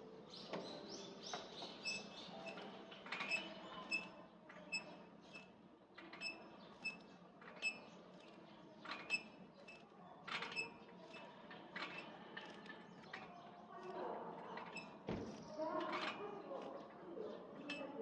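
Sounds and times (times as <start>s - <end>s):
metal bar creaking and squeaking: 1.8s - 4.1s, 8.8s - 12.1s, 14.6s - 15.0s.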